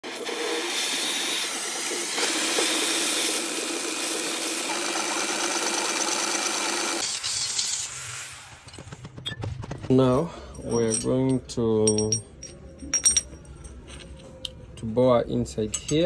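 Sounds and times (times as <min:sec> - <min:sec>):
gas torch hissing: 0:00.0 - 0:04.7, 0:07.0 - 0:08.6.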